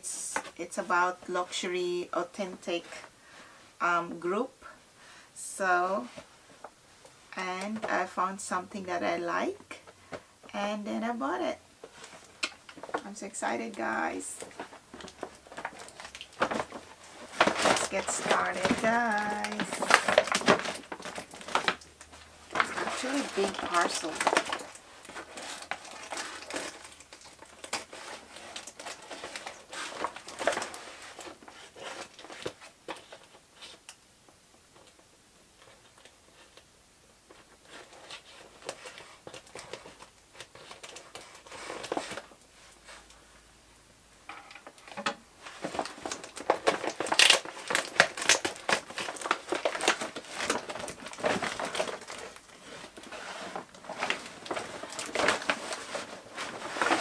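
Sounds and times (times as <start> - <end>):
plastic bag crinkling: 11.8 - 34.0, 37.3 - 43.2, 44.5 - 57.0.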